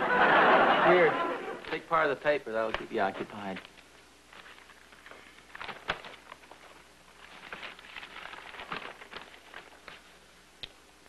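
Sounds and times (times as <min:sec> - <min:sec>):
newspaper pages rustling: 0:02.6 - 0:10.4.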